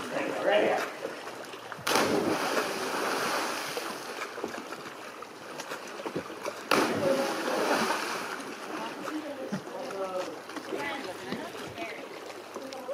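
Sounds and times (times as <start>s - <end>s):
splash into water: 1.8s - 4.6s, 6.4s - 8.9s.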